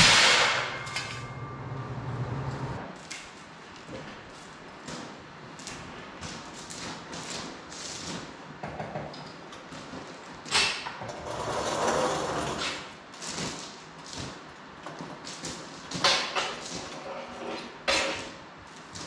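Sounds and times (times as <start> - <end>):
sharp metal clank: 0.0 - 2.2.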